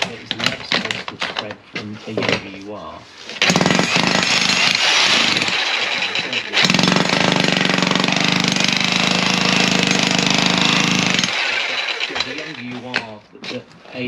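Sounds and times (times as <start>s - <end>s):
demolition hammer on concrete: 3.3s - 13.2s.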